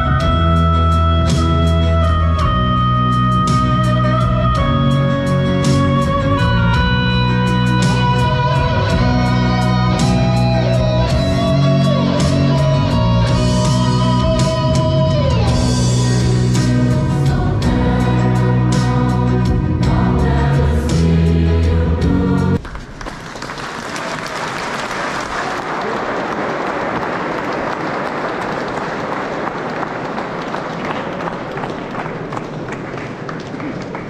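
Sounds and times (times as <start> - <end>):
choir singing: 8.2 - 22.6
applause: 22.6 - 34.0.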